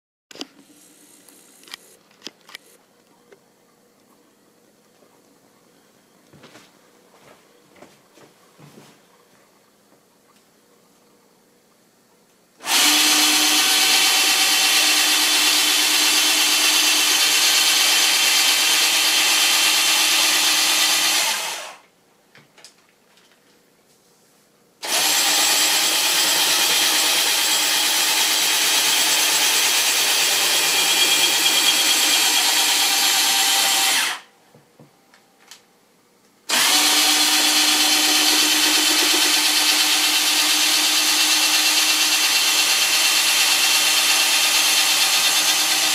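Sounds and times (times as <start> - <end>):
power drill running: 12.6 - 21.8, 24.8 - 34.3, 36.5 - 45.9.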